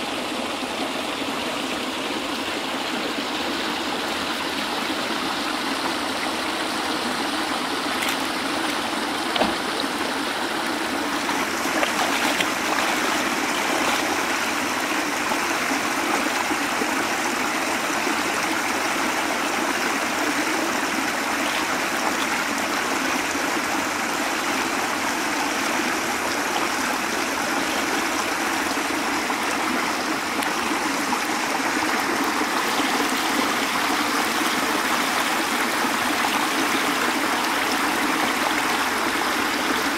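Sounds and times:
water pouring into canal: 2.6s - 39.9s
brief knock: 9.3s - 9.6s.

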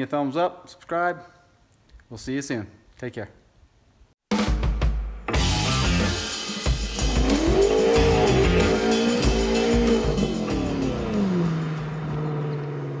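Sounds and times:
music with steady drum beat: 4.3s - 12.4s
car engine revving and idling: 5.4s - 13.0s.

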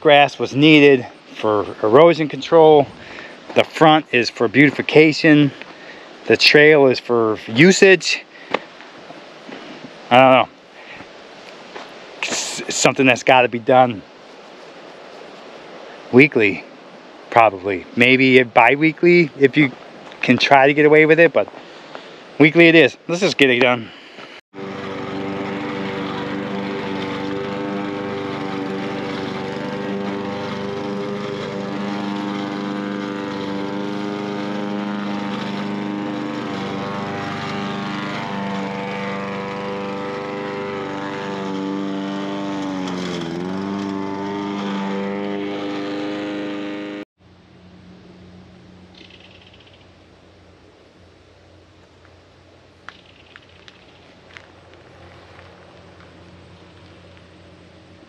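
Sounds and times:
faint outdoor background: 0.0s - 58.0s
lawn mower engine running: 24.5s - 51.1s, 52.9s - 58.0s.

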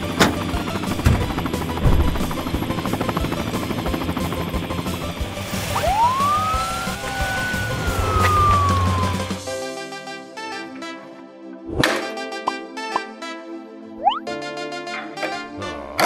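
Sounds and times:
police siren wailing: 5.7s - 9.5s.

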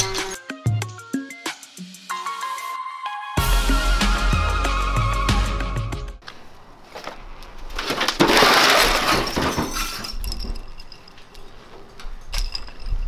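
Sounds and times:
glass crash and shattering: 7.8s - 11.1s
scattered clinks: 9.7s - 13.0s.

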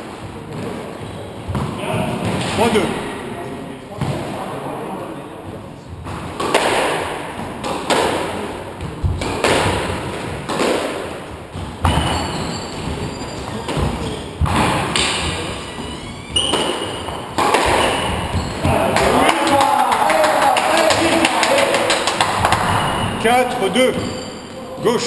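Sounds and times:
squash ball hitting rackets and walls: 0.0s - 2.9s, 4.0s - 4.4s, 5.5s - 24.6s
shoes squeaking on wooden floor: 0.8s - 1.6s, 11.3s - 19.2s, 22.3s - 25.0s.

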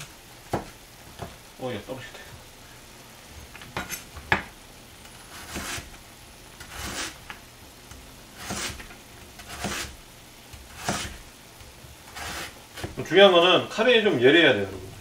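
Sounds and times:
knife slicing radish: 5.2s - 6.0s, 6.6s - 7.3s, 8.4s - 11.3s, 12.1s - 13.0s.

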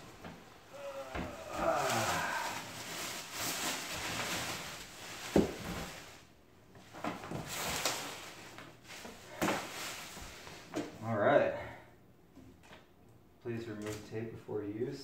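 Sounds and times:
plastic wrapping crinkling: 0.8s - 6.3s, 6.9s - 10.6s.

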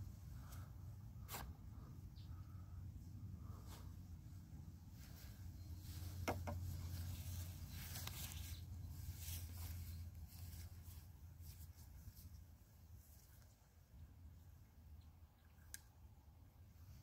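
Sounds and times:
steady low hum: 0.0s - 17.0s
light rustling: 5.0s - 13.6s.

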